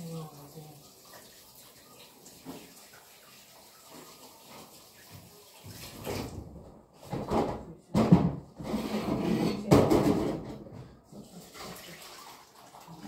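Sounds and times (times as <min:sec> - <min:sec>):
water splashing in a basin: 0:00.0 - 0:06.5, 0:11.0 - 0:13.0
basin knocking against sink: 0:07.1 - 0:10.9.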